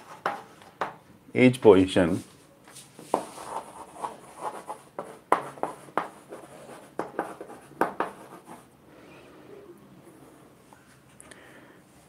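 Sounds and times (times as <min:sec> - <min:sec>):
chalk tapping and scratching on chalkboard: 0:00.0 - 0:01.0, 0:02.7 - 0:08.7.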